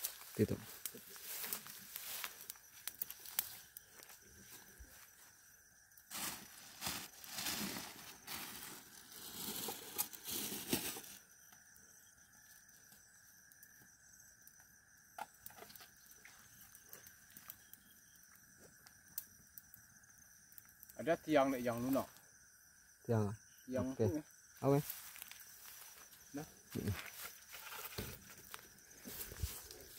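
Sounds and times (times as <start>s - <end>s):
faint insect trilling: 0.0s - 29.9s
plastic bag rustling: 6.1s - 11.2s.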